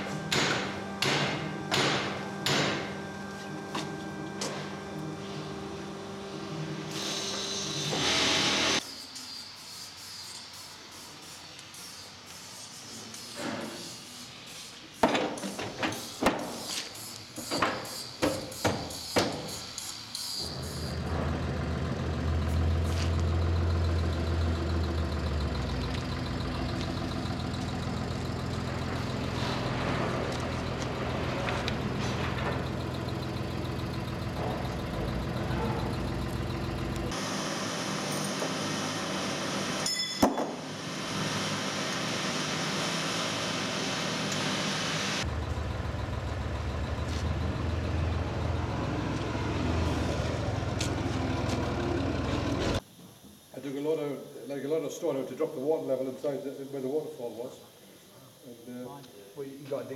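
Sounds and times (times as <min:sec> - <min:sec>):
machine hum: 0:00.0 - 0:08.8, 0:20.4 - 0:39.9
sharp knocks: 0:00.3 - 0:02.9.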